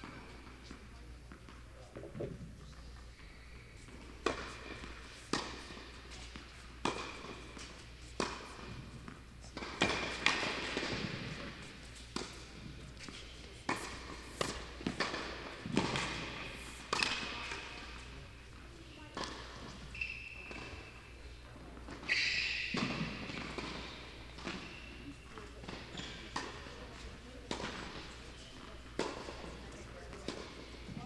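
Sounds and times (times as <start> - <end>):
tennis ball struck by rackets: 3.9 - 12.6, 13.7 - 18.1
ball bouncing on hard court: 3.9 - 18.1, 21.9 - 31.0.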